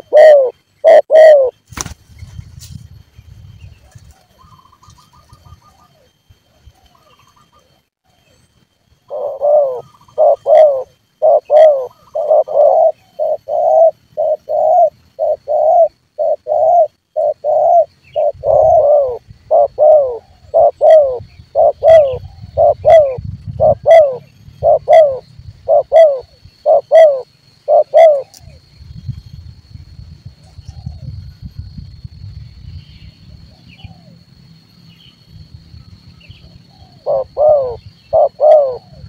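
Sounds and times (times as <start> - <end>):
dove cooing: 0.0 - 1.6, 9.1 - 28.6, 33.4 - 34.2, 36.7 - 39.0.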